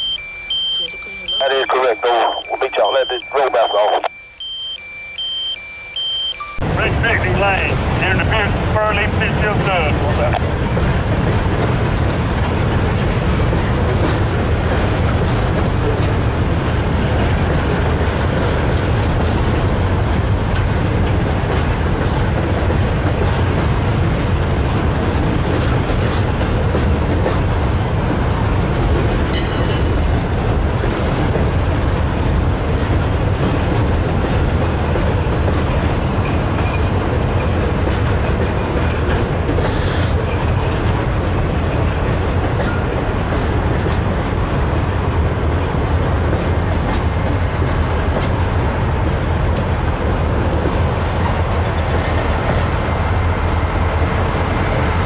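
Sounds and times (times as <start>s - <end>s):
train wheels rumbling on rails: 6.6s - 55.0s.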